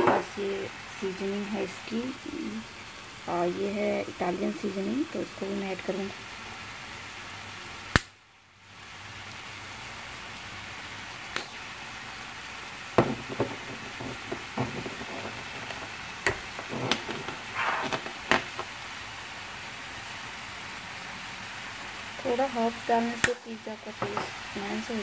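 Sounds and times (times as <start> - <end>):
vegetables sizzling in a frying pan: 0.0 - 25.0
bottle clicks and knocks: 13.0 - 15.4.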